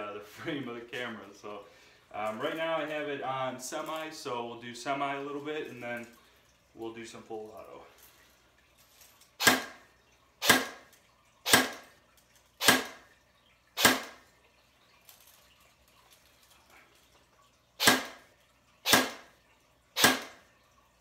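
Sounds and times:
airsoft rifle shots: 9.4 - 9.8, 10.4 - 10.8, 11.5 - 11.8, 12.6 - 13.0, 13.8 - 14.2, 17.8 - 18.2, 18.8 - 19.2, 20.0 - 20.4.

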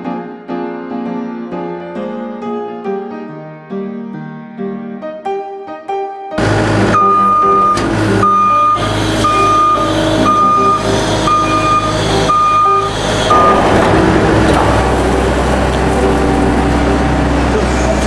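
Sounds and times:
loader engine running: 6.4 - 18.0
high beeping tone: 8.2 - 15.4.

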